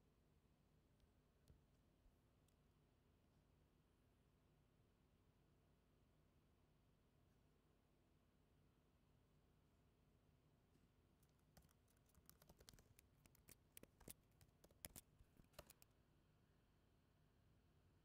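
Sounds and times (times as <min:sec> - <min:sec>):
keyboard typing: 0:11.2 - 0:15.8.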